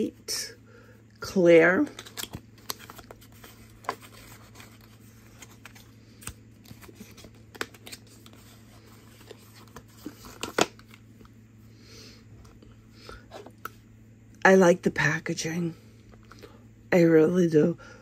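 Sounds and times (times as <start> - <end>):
packaging rustling: 1.9 - 11.0.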